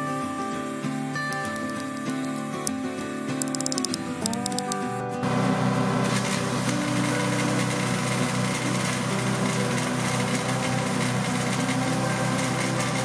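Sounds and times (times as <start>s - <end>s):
gas engine running: 3.4s - 13.0s.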